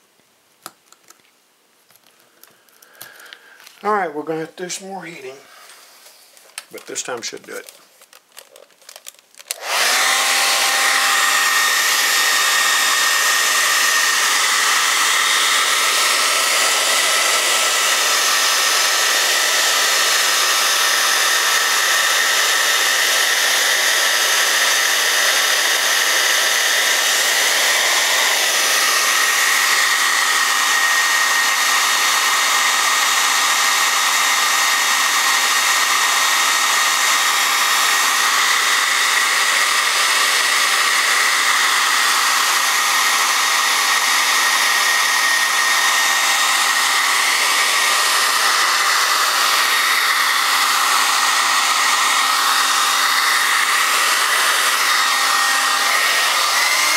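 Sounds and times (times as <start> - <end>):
hair dryer running: 2.5 - 7.7, 8.9 - 56.9.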